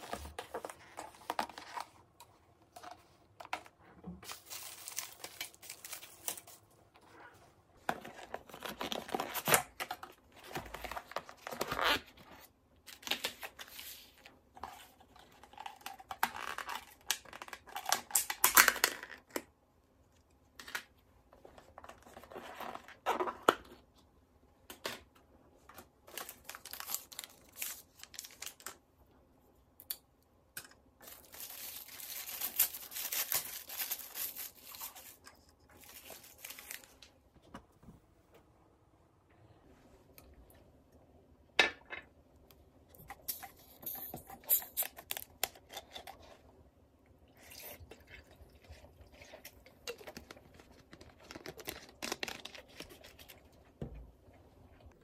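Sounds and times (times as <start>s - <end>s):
plastic wrap crinkling and tearing: 4.2s - 6.6s, 26.1s - 28.8s, 31.0s - 37.1s, 49.2s - 53.4s.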